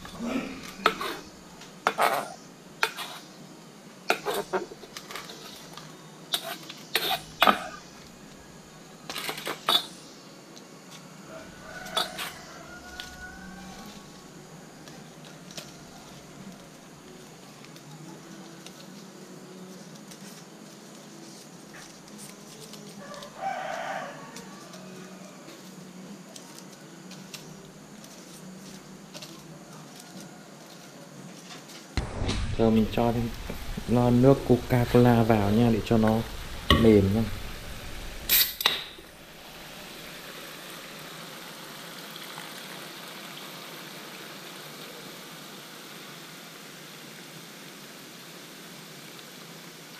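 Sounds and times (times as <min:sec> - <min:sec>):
leaves clicking: 0:00.0 - 0:03.4, 0:04.1 - 0:41.4
snails sizzling in frying pan: 0:00.0 - 0:10.1, 0:11.0 - 0:17.8, 0:23.0 - 0:24.9, 0:32.0 - 0:49.9
rooster crowing: 0:11.2 - 0:14.5, 0:22.9 - 0:25.7
liquid pouring: 0:32.6 - 0:44.6.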